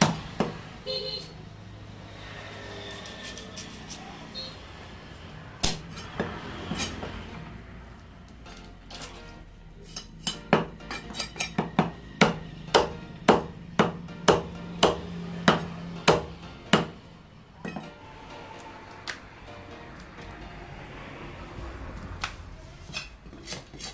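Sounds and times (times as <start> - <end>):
knife chopping fish on wood: 5.6 - 7.2, 9.9 - 17.0.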